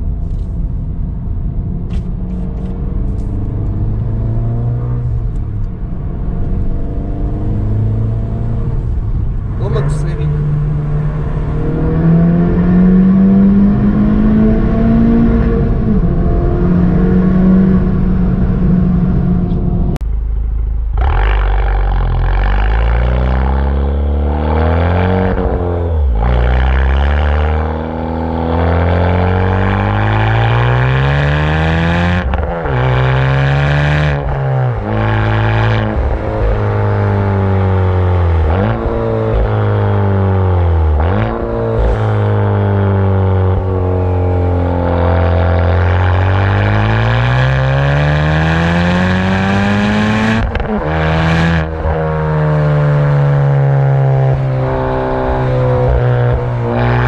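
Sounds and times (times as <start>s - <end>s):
car exhaust accelerating: 0.0s - 57.0s
exhaust cracks: 18.4s - 31.2s.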